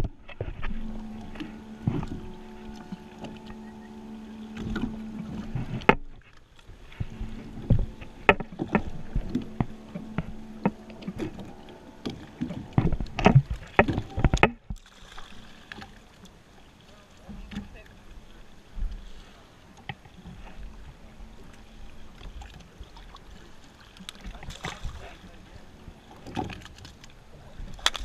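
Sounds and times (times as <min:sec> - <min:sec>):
boat engine droning: 0:00.0 - 0:28.0
knocks and clatter on hull: 0:04.5 - 0:16.0, 0:25.8 - 0:28.0.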